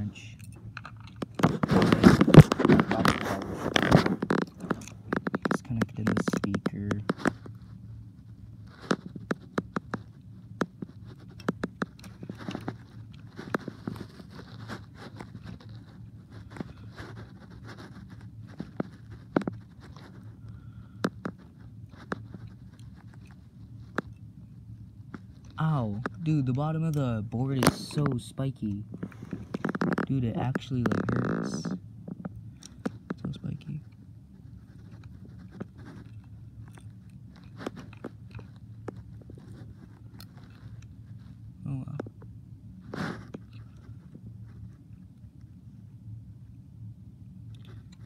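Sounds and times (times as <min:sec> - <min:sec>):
low steady hum: 0:00.0 - 0:48.0
small clicks of handled wiring: 0:08.6 - 0:17.6, 0:32.1 - 0:34.0.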